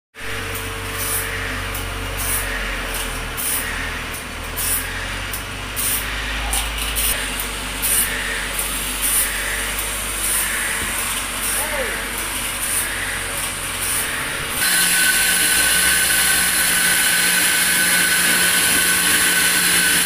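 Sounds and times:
sawmill machinery humming: 0.2 - 20.0
short hissing bursts: 5.8 - 14.9.

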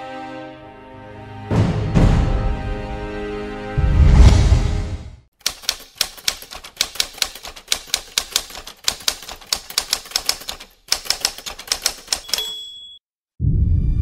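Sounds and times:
typewriter keys clacking: 5.4 - 12.8.

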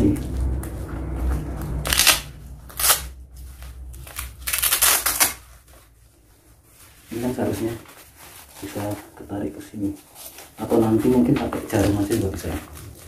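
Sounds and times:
strap velcro tearing: 1.8 - 3.2, 4.0 - 5.6.

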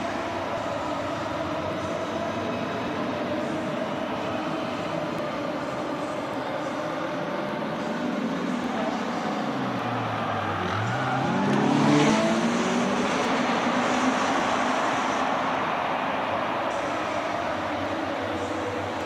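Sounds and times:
race cars accelerating past: 8.1 - 19.0.

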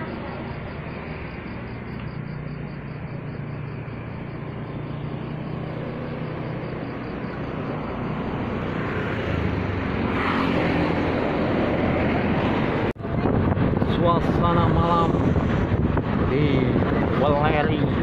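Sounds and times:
vehicle engine running: 0.0 - 10.0
roadside traffic noise: 0.0 - 18.0.

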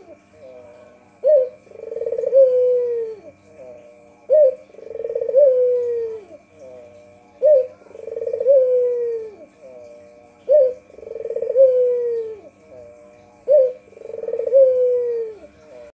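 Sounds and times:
dove cooing: 0.0 - 16.0.

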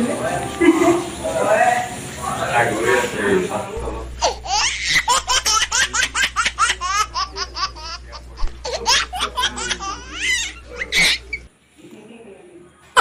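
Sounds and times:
rapid high-pitched laughter: 4.2 - 11.4.

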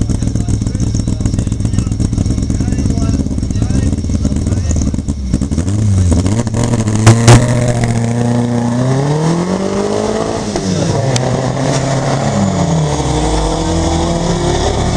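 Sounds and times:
rally car engine revving: 0.0 - 14.9.

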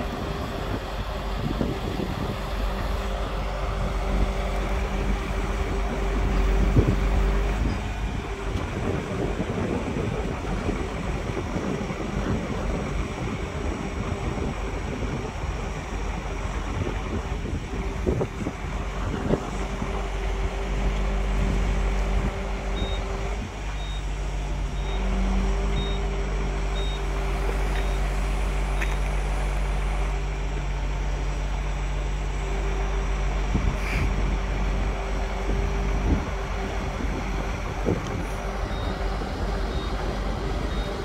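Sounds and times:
diesel engine running: 0.0 - 41.0
hydraulic humming: 0.0 - 41.0
faint short beeps: 25.8 - 26.1.

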